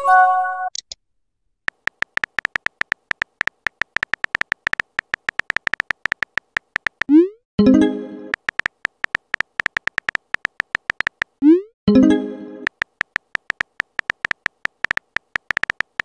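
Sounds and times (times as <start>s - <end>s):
short electronic typing beeps: 1.7s - 7.4s.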